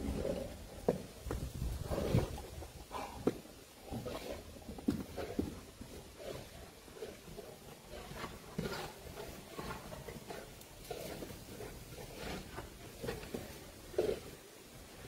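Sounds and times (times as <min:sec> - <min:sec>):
dogs grunting and huffing: 0:01.7 - 0:06.6.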